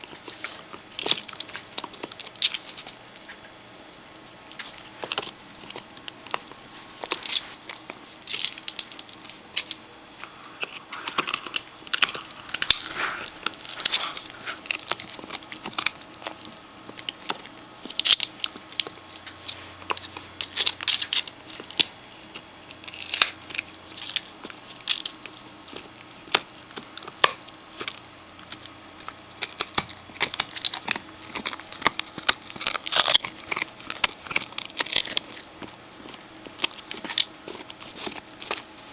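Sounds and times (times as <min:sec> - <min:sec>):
puppy chewing rawhide bone: 0:00.0 - 0:38.9.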